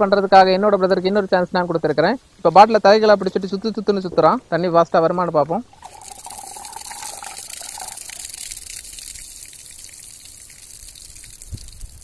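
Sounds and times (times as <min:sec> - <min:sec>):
water gushing from bottle: 0:05.7 - 0:12.0
water splashing onto grass: 0:05.7 - 0:12.0.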